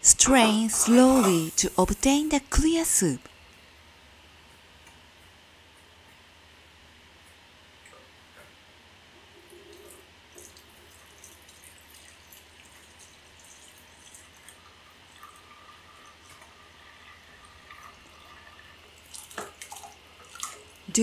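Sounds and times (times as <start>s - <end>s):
liquid trickling and dripping: 9.3s - 20.9s.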